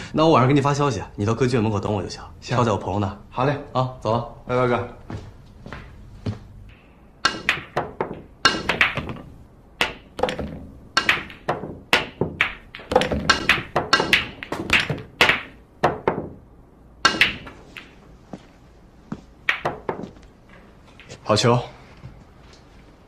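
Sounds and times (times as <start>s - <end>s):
billiard balls clacking: 7.2s - 16.4s, 17.0s - 18.1s, 19.4s - 21.2s.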